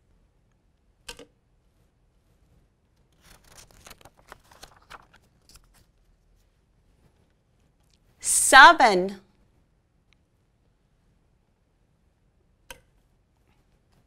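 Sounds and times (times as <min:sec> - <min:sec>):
paper page rustling: 0:03.1 - 0:07.1.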